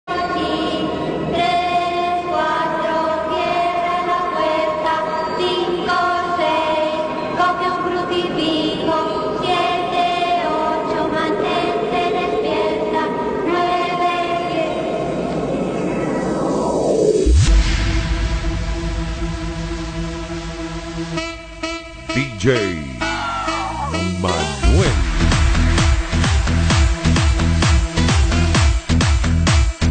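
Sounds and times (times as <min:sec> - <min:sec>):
choir-like voices singing: 0:00.2 - 0:14.9, 0:22.2 - 0:25.0.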